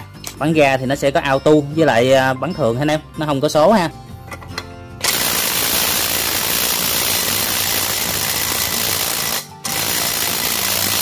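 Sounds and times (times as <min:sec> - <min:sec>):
impact wrench hammering on nut: 0:05.0 - 0:11.0.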